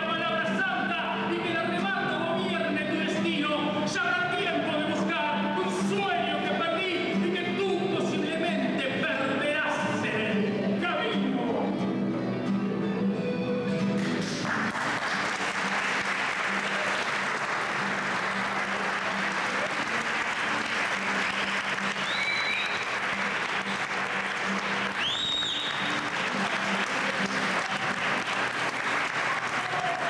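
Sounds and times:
audience applauding: 0:13.9 - 0:30.0
short high whistles: 0:21.3 - 0:23.0, 0:25.0 - 0:26.0.

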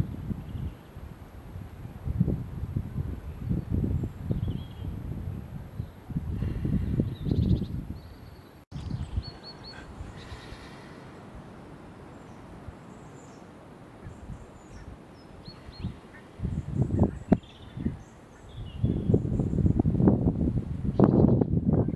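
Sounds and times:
wind on microphone: 0:00.0 - 0:11.6, 0:14.0 - 0:21.9
small birds chirping: 0:06.8 - 0:11.3, 0:12.0 - 0:19.8.

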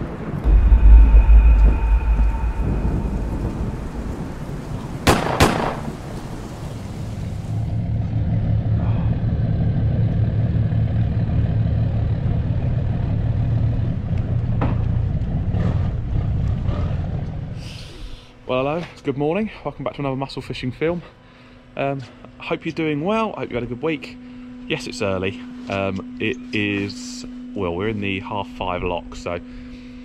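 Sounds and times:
thunder-like rumble: 0:00.0 - 0:11.2
sharp double crack: 0:00.4 - 0:06.3.

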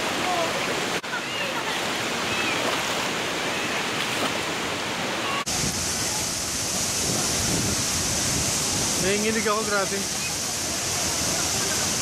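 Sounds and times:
stream water splashing over rocks: 0:00.0 - 0:12.0
waterfall rushing: 0:00.0 - 0:12.0.

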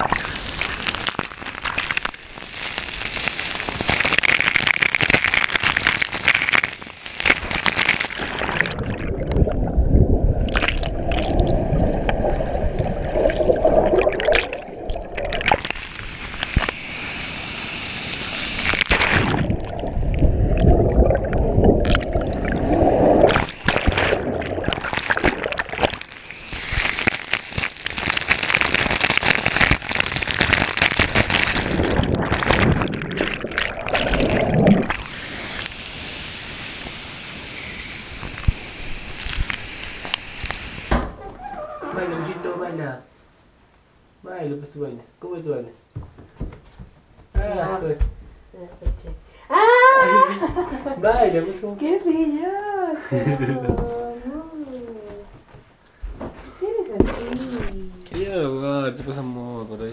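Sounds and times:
underwater gurgling and sloshing: 0:08.1 - 0:16.9, 0:18.1 - 0:27.4, 0:30.9 - 0:40.9
waterfall hissing: 0:15.6 - 0:19.4, 0:26.1 - 0:27.9, 0:34.0 - 0:41.0.

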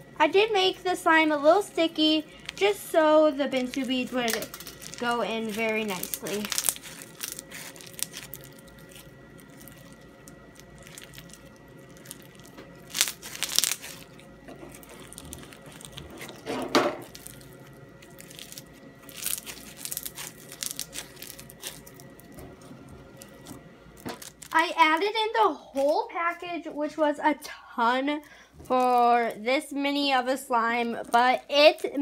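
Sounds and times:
beaded slime crunching: 0:01.0 - 0:26.5, 0:28.1 - 0:32.0.

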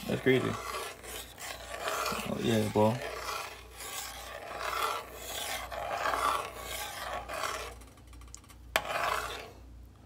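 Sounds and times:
metal spoon stirring in metal pot: 0:00.0 - 0:09.6.

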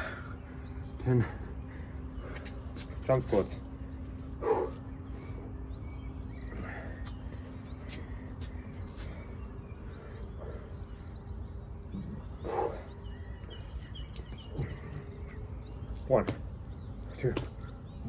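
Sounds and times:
birds chirping and singing: 0:00.0 - 0:18.0
low outdoor rumble: 0:00.0 - 0:18.0.

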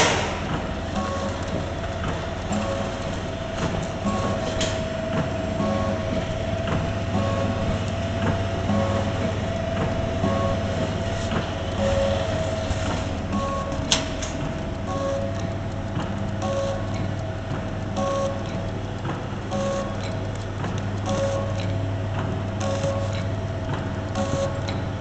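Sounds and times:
filling machine humming: 0:00.0 - 0:25.0
short machine tones: 0:00.9 - 0:01.6, 0:02.5 - 0:03.2, 0:03.9 - 0:06.5, 0:07.1 - 0:07.8, 0:08.7 - 0:15.5, 0:16.4 - 0:17.1, 0:18.0 - 0:18.6, 0:19.5 - 0:20.2, 0:21.1 - 0:21.8, 0:22.6 - 0:23.4, 0:24.2 - 0:24.9
light machine ticks: 0:00.9 - 0:04.4, 0:13.2 - 0:25.0.

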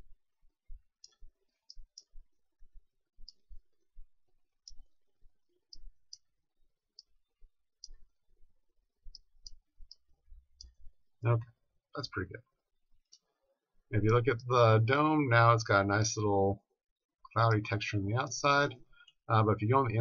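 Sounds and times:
computer mouse clicks: 0:01.0 - 0:02.2.

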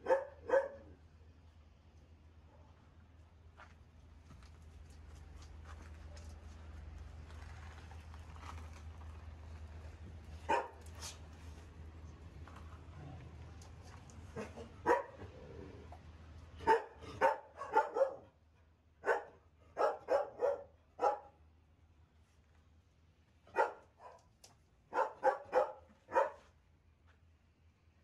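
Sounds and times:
dogs barking: 0:00.0 - 0:00.9, 0:10.5 - 0:10.9, 0:14.3 - 0:15.3, 0:16.6 - 0:18.3, 0:19.0 - 0:21.4, 0:23.5 - 0:24.2, 0:24.9 - 0:26.4.

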